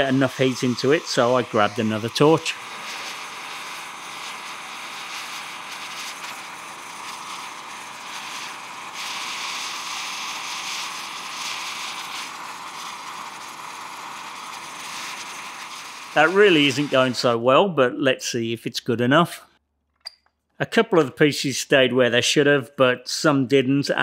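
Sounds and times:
gas torch flames hissing: 0.0 - 17.4.

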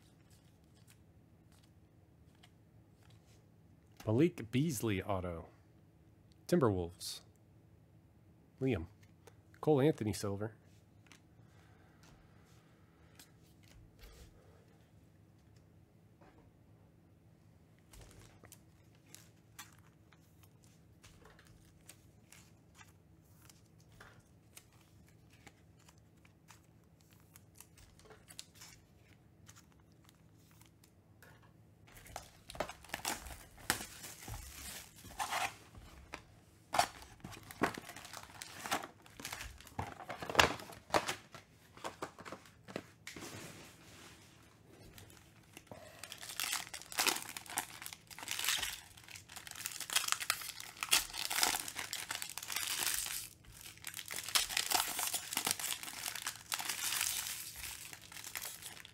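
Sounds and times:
wrappers crinkling and tearing: 17.9 - 30.9, 31.9 - 36.2, 36.8 - 42.7, 44.9 - 58.9.

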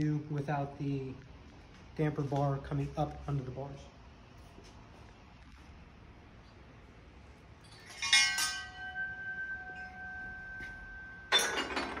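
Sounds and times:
bars clattering against frame: 7.6 - 9.1, 10.6 - 12.0
bar ringing steady tone: 7.6 - 12.0
metal tone bars clinking: 7.6 - 12.0.

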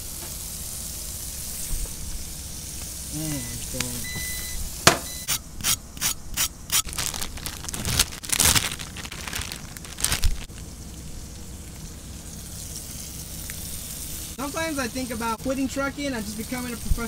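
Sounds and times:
burger patty sizzling: 0.0 - 17.0
plastic packaging crinkling: 6.7 - 10.8.

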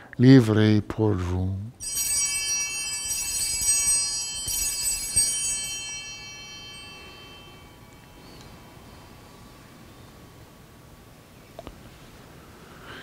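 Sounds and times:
cluster of small bells ringing: 1.8 - 9.3.

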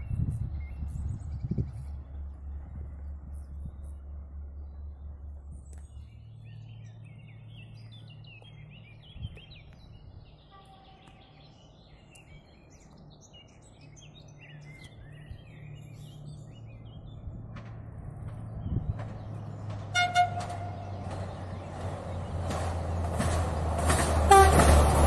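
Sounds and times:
small birds chirping and singing: 0.0 - 17.5
distant diesel railcar hum: 0.0 - 25.0.

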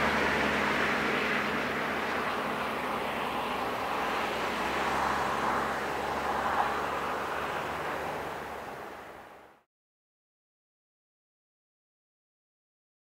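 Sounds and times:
jet engines idling: 0.0 - 9.3.

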